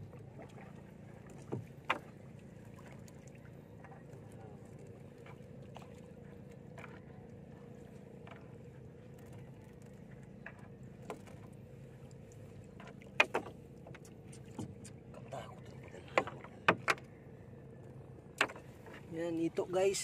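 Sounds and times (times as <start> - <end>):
net hauled over boat side: 0.0 - 20.0
steady low hum: 0.0 - 20.0
net and floats knocking on hull: 1.3 - 2.2, 12.8 - 14.9, 18.4 - 19.0.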